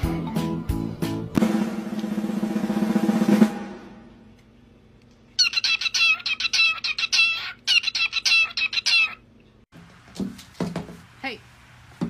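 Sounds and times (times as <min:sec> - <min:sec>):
music with drums: 0:00.0 - 0:04.1
cockatiel chirping: 0:05.4 - 0:09.3.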